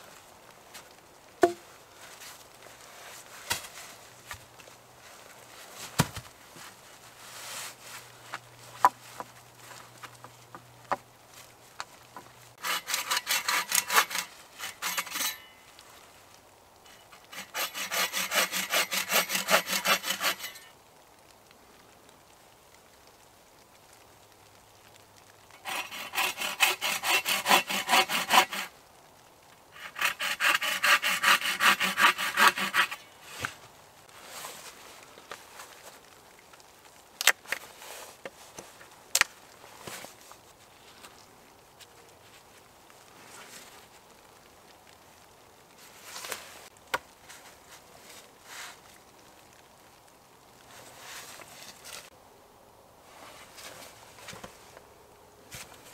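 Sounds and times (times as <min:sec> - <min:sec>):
hand saw cutting wood: 0:12.6 - 0:15.5, 0:17.2 - 0:20.7, 0:25.6 - 0:28.7, 0:29.8 - 0:33.5.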